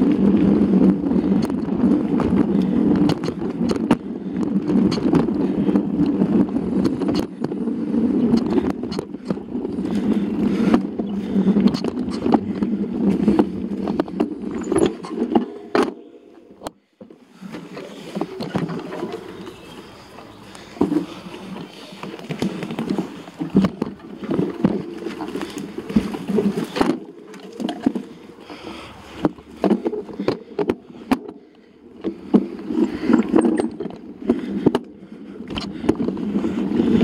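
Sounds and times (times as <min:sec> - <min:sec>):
bike rattling: 0:00.0 - 0:37.0
bike tyre rumble on dirt: 0:00.0 - 0:37.0
bike knocking over bumps: 0:22.1 - 0:28.1.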